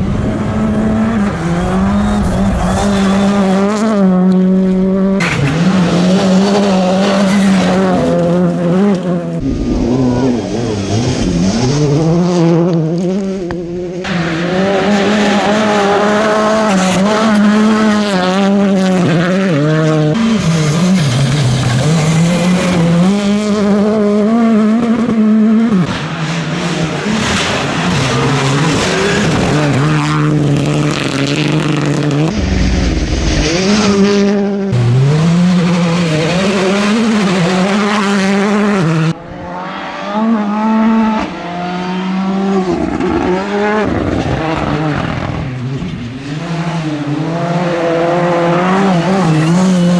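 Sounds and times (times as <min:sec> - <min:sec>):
rally car engines revving: 0:00.0 - 0:49.9.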